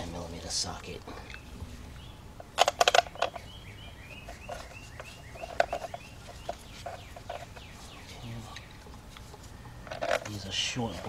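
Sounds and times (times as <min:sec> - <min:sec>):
bird chirping: 0:00.0 - 0:11.0
hand tools and bolts clicking: 0:02.4 - 0:08.0, 0:08.6 - 0:11.0.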